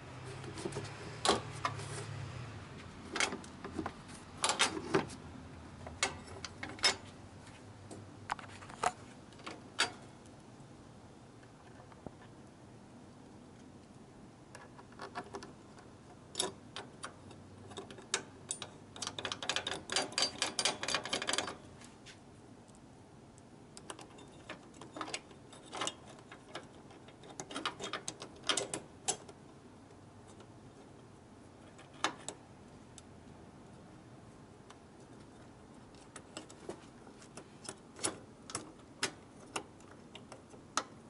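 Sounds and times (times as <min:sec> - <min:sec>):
metal brackets and bolts clicking: 0:00.4 - 0:01.9, 0:03.0 - 0:05.1, 0:05.8 - 0:07.1, 0:07.9 - 0:10.1, 0:16.2 - 0:21.7, 0:23.8 - 0:29.4, 0:31.7 - 0:32.4, 0:35.9 - 0:41.0.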